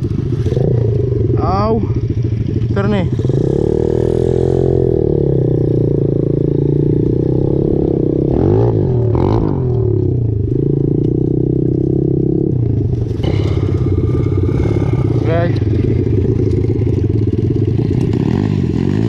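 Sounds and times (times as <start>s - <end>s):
motorbike engine revving: 0.0s - 19.0s.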